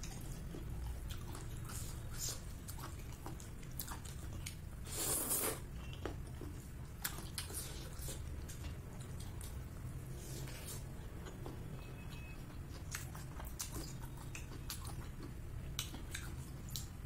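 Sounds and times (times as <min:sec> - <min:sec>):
person chewing food: 0:00.0 - 0:17.0
slurping noodles: 0:04.9 - 0:05.6.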